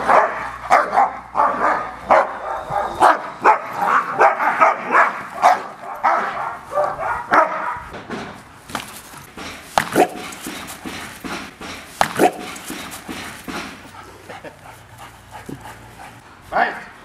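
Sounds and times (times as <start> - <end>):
dogs barking: 0.0 - 7.9, 9.8 - 10.7, 12.0 - 16.8.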